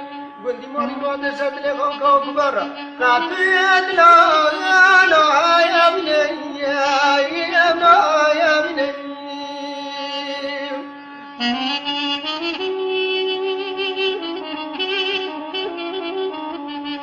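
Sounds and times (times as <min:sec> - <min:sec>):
instrumental drone: 0:00.0 - 0:14.3
man singing folk melody: 0:00.4 - 0:10.8.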